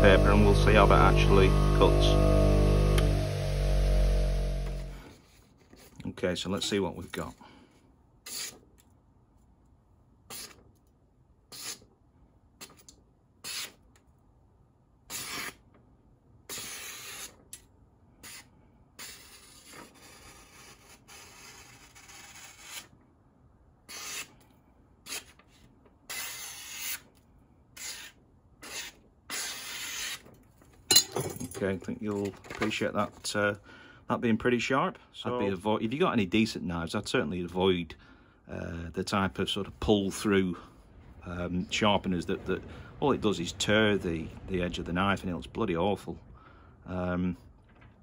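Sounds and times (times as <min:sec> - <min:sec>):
knife slicing through paper: 0:18.2 - 0:22.9, 0:23.9 - 0:24.4, 0:25.0 - 0:27.1, 0:27.8 - 0:30.3.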